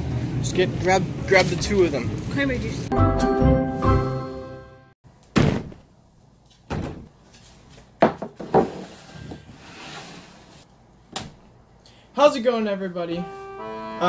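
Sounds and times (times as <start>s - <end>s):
music: 2.9s - 5.0s, 13.1s - 14.0s.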